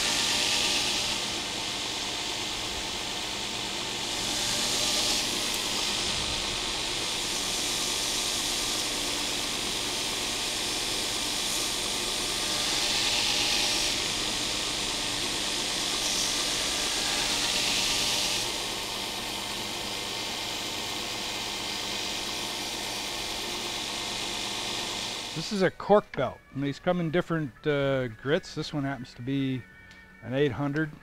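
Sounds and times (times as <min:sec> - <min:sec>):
knife grinding hiss: 0:00.0 - 0:01.3, 0:06.9 - 0:09.3, 0:09.9 - 0:14.7, 0:15.3 - 0:18.7
belt grinder running: 0:00.0 - 0:25.4.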